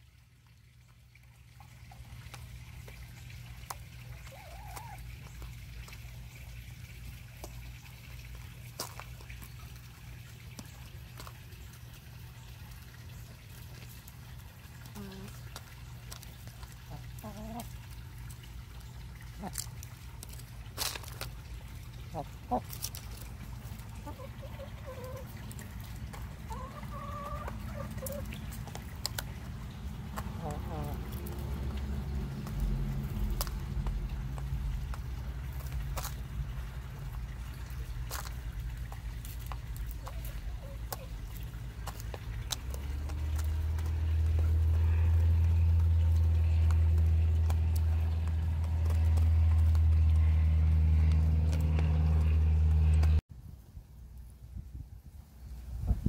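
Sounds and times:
hens calling softly: 0:02.1 - 0:07.5, 0:10.3 - 0:20.2, 0:21.4 - 0:31.7, 0:36.6 - 0:52.4
steady low rumble: 0:27.6 - 0:56.0
loud low hum: 0:42.9 - 0:53.2.

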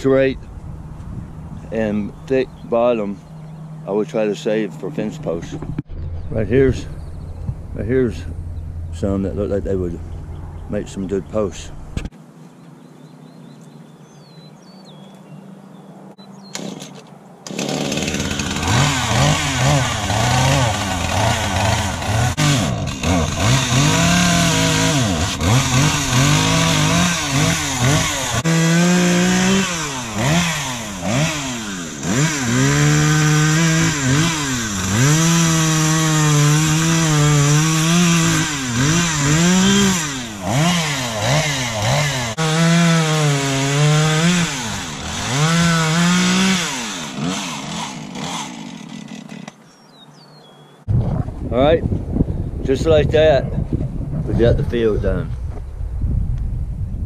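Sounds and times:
chainsaw cutting wood: 0:16.4 - 0:49.8.

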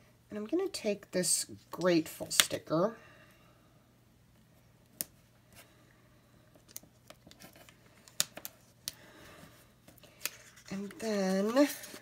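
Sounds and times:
paper rustling: 0:09.9 - 0:12.0.

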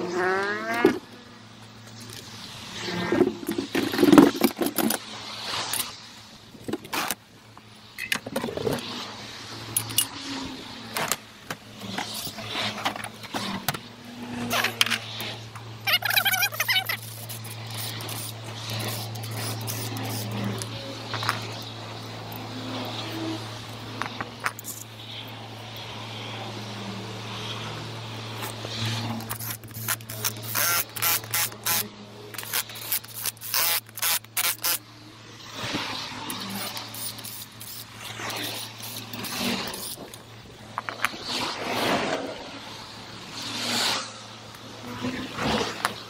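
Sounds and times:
handling and scraping noises: 0:00.4 - 0:26.0, 0:27.2 - 0:46.0
impact wrench bursts: 0:15.8 - 0:20.3, 0:29.2 - 0:34.8, 0:36.3 - 0:40.2.

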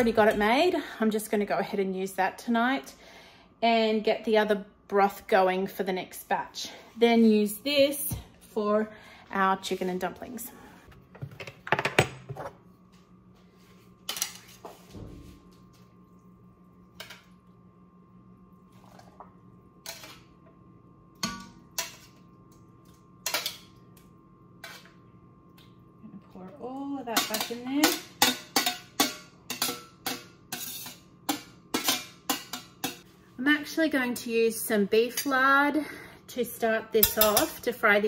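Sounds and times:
faint steady hum: 0:00.0 - 0:38.0
metal tongs clinking on pans: 0:27.1 - 0:33.0, 0:37.0 - 0:37.6.

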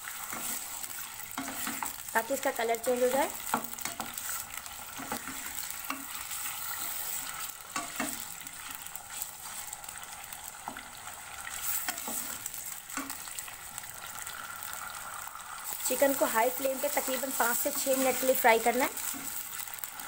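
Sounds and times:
spoon scraping a pan: 0:00.0 - 0:02.0, 0:02.8 - 0:13.5, 0:16.6 - 0:19.7
chicken sizzling in hot oil: 0:00.0 - 0:20.0.

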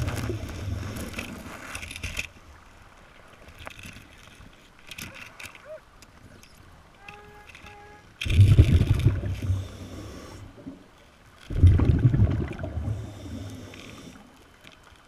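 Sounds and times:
underwater noise: 0:00.0 - 0:15.0
diver's exhaled bubbles rumbling: 0:08.2 - 0:09.7, 0:11.5 - 0:13.2.

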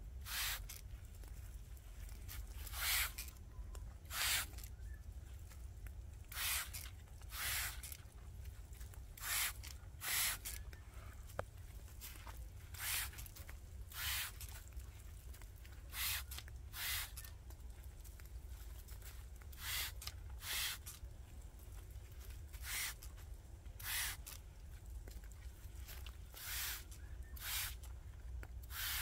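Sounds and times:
hand sprayer hissing puffs: 0:00.2 - 0:00.8, 0:02.3 - 0:03.3, 0:04.1 - 0:04.7, 0:06.3 - 0:08.0, 0:09.2 - 0:10.6, 0:12.7 - 0:14.6, 0:15.9 - 0:17.3, 0:19.6 - 0:21.0, 0:22.6 - 0:23.1, 0:23.8 - 0:24.4, 0:26.3 - 0:27.9, 0:28.6 - 0:29.0.

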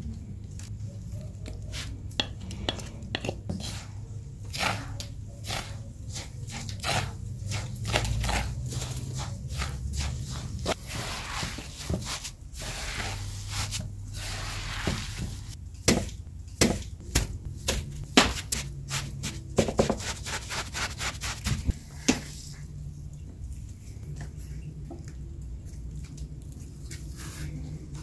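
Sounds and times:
hands squishing dough: 0:00.0 - 0:28.0
patting dough onto metal tray: 0:01.4 - 0:22.6.

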